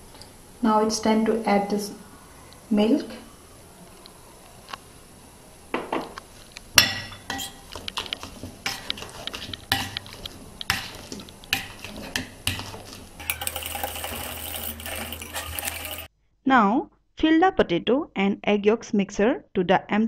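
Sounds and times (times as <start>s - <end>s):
potato masher clinking on glass bowl: 7.0s - 16.1s
soft squishing: 7.4s - 13.3s.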